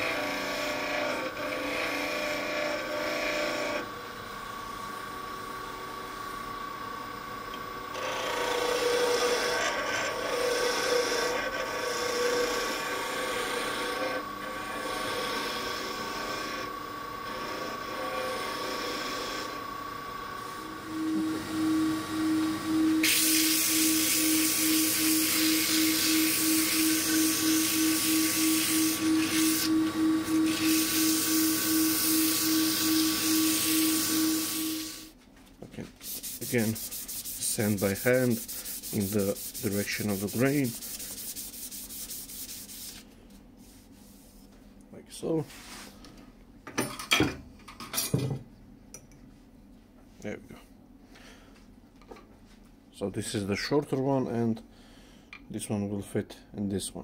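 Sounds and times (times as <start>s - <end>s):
turning tool scraping wood: 0.0s - 3.9s, 7.9s - 19.6s, 20.5s - 35.2s, 36.0s - 44.4s
wood lathe motor whine: 0.0s - 35.1s, 36.2s - 42.8s
pulsing hum with hiss: 12.0s - 35.1s, 36.0s - 44.3s.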